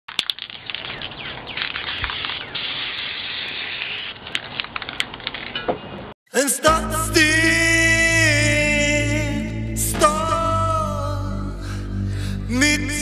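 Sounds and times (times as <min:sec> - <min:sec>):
clicks and crackles: 0:00.1 - 0:06.0.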